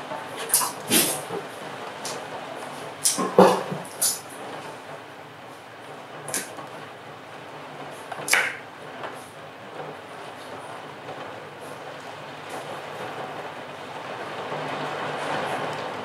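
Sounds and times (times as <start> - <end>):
rain falling: 0.0 - 16.0
knife chopping on wooden board: 8.3 - 8.6.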